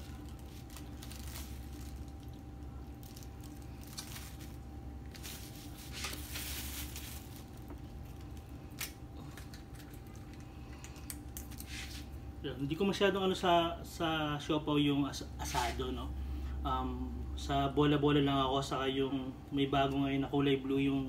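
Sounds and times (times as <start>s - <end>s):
paper and plastic bag rustling: 0.0s - 8.6s
bun squishing: 0.0s - 12.2s
faint steady hum: 0.0s - 21.0s.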